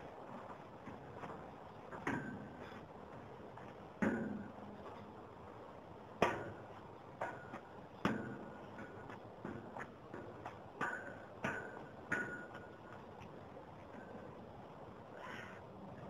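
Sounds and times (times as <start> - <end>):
metal knocks with ringing tone: 10.8 - 12.8.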